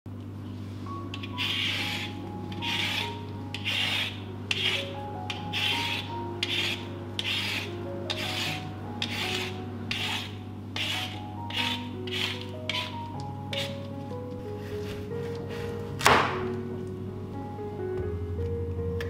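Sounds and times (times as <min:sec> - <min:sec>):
peeler scraping radish skin: 0:01.1 - 0:13.8.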